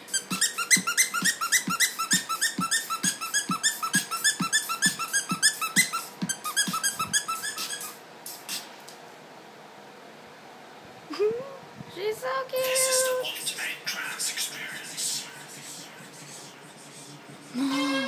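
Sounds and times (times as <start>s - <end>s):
plush toy squeaking: 0.1s - 8.0s.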